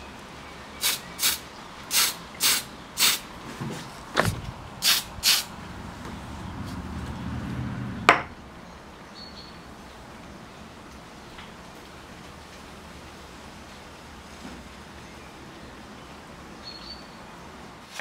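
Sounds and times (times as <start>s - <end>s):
aerosol spray can hissing: 0.8s - 3.2s, 4.8s - 5.5s
low rumble: 4.2s - 8.4s.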